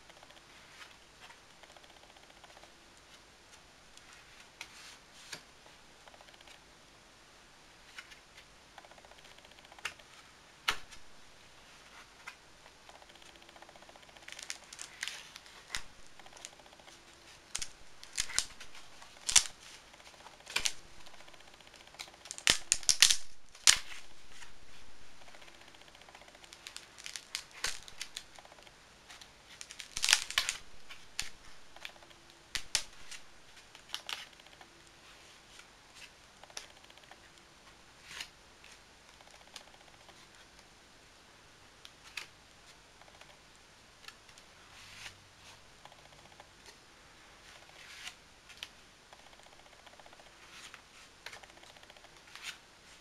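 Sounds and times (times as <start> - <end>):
paper pages turning: 11.7 - 37.4, 44.0 - 46.0, 47.4 - 53.0.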